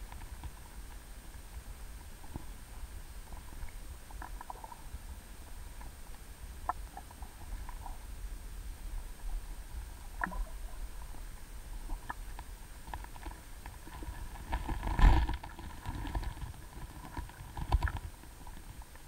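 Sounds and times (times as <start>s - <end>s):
faint underwater clicks: 0.0s - 8.1s, 10.0s - 19.0s
underwater low rumble: 0.0s - 19.0s
underwater thump: 14.5s - 18.0s.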